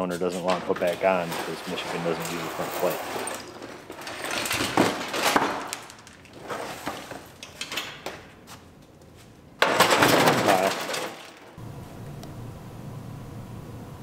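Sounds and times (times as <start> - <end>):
plastic bumper clattering and scraping: 0.3 - 5.8, 9.6 - 11.4.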